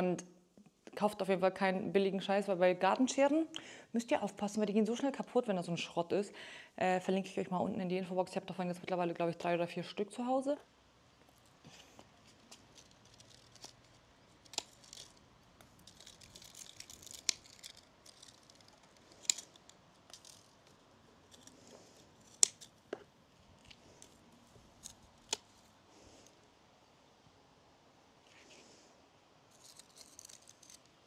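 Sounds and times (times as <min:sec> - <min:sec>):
leaves and stems rustling: 0:11.3 - 0:26.3, 0:29.5 - 0:30.9
secateurs snipping plant stems: 0:12.4 - 0:22.8.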